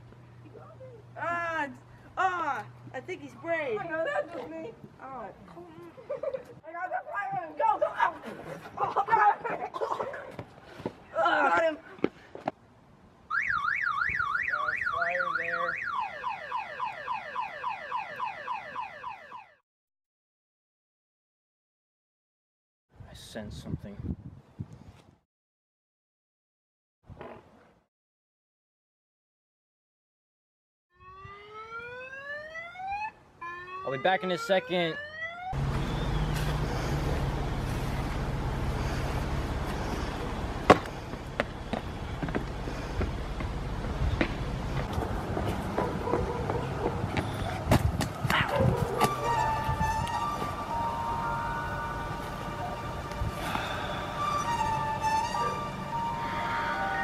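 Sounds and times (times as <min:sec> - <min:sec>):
road traffic rumble: 0:00.0 - 0:18.3, 0:33.1 - 0:57.0
car alarm siren: 0:13.3 - 0:19.6, 0:30.9 - 0:36.3, 0:48.8 - 0:57.0.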